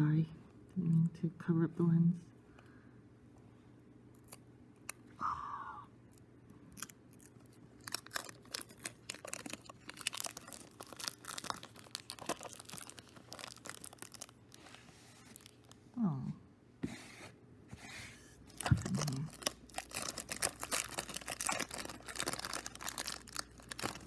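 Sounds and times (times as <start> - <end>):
cellophane crinkling: 6.7 - 15.8, 18.5 - 24.0.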